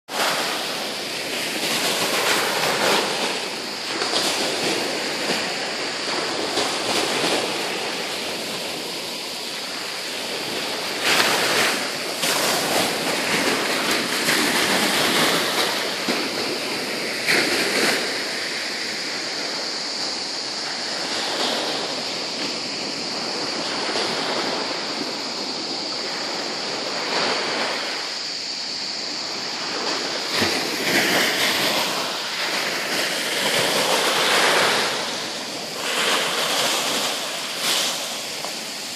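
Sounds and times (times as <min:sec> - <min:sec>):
waves breaking on pebble shore: 0:00.1 - 0:38.9.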